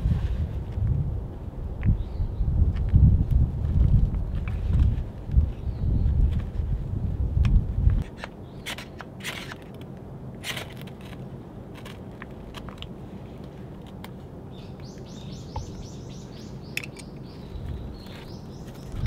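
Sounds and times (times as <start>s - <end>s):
bird chirping: 14.5s - 19.0s.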